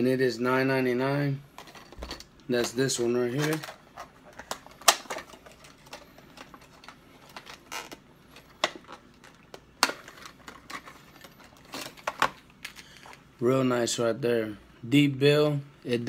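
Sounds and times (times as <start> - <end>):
plastic packaging crackling: 2.8 - 13.2.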